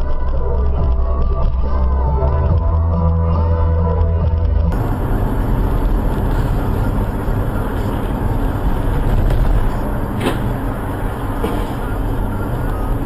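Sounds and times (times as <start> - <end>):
car road noise from inside: 0.0 - 13.0
tyres on wet road: 4.7 - 13.0.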